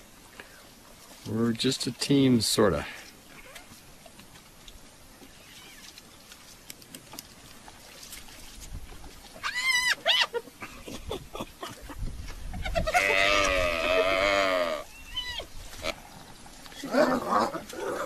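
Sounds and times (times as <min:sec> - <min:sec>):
drawn-out falling animal call: 0:05.2 - 0:06.0, 0:09.3 - 0:10.8, 0:11.6 - 0:18.0
high-pitched wavering animal calls: 0:05.3 - 0:06.0, 0:09.4 - 0:10.4, 0:12.7 - 0:16.0.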